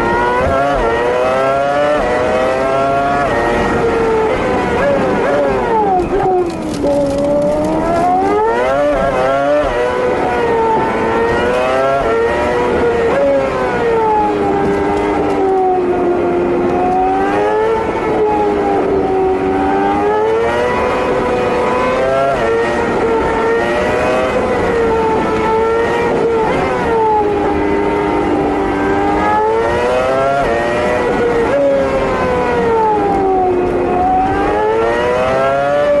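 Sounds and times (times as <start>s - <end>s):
car engine at high speed: 0.0s - 36.0s
road noise: 0.0s - 36.0s.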